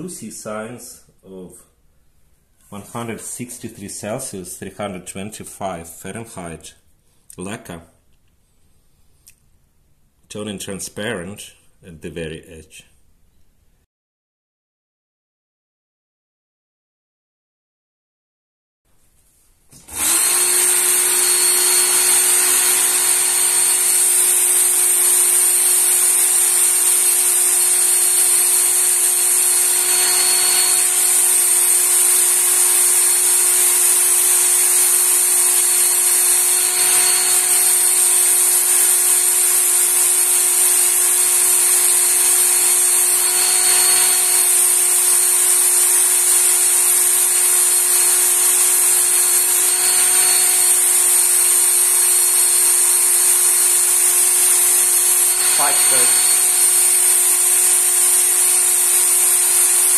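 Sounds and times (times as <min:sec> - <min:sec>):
belt knife sharpener whining: 0:19.8 - 0:59.9.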